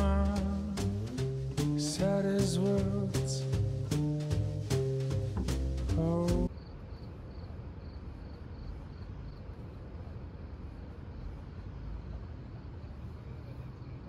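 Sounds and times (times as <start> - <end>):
jazz tune: 0.0 - 6.5
low rumble: 0.0 - 6.5.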